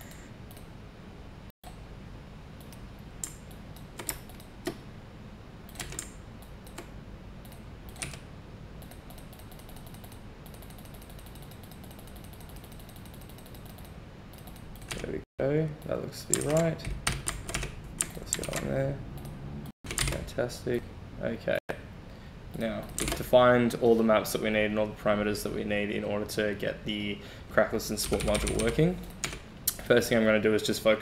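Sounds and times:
low steady hum: 0.0s - 31.0s
computer keyboard clicking: 5.7s - 8.2s, 8.8s - 15.2s, 16.3s - 19.3s, 19.9s - 20.2s, 22.8s - 23.2s, 28.0s - 29.8s.

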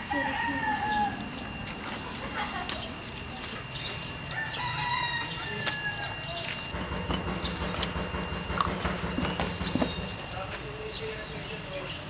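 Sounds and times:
rooster crowing: 0.0s - 1.4s, 4.3s - 6.7s.

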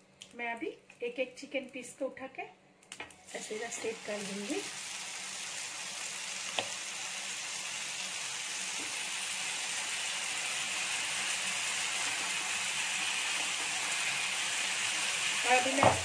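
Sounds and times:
chicken sizzling in grill pan: 3.2s - 16.0s.

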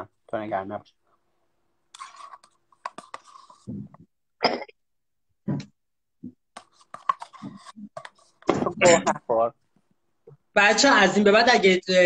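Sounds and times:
cough-like burst: 4.4s - 4.8s.

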